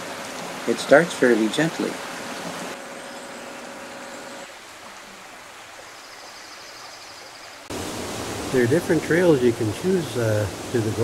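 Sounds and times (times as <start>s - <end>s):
creek flowing over rocks: 0.0s - 11.0s.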